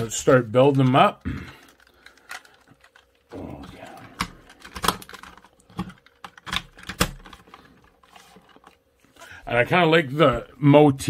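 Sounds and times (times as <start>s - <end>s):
plastic rubbing scrape: 7.3s - 8.8s.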